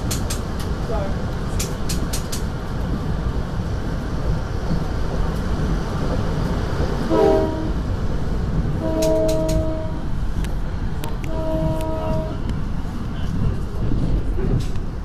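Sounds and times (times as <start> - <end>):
train rumbling: 0.0 - 15.0
train air horn blasts: 7.1 - 7.8, 8.8 - 10.1, 11.2 - 12.4.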